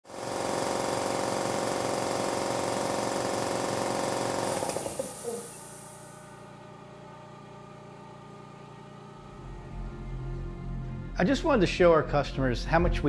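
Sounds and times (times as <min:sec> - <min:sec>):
air compressor rattling: 0:00.1 - 0:06.3
compressor steady hum: 0:00.1 - 0:13.0.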